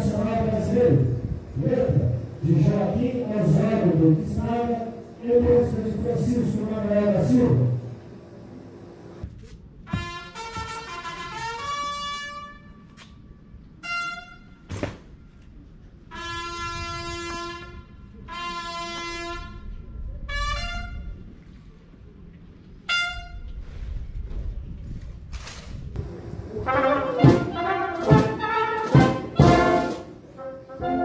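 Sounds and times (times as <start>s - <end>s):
brass horn call: 9.9s - 12.9s, 13.8s - 14.6s, 16.1s - 21.2s, 22.9s - 23.5s, 26.0s - 31.0s.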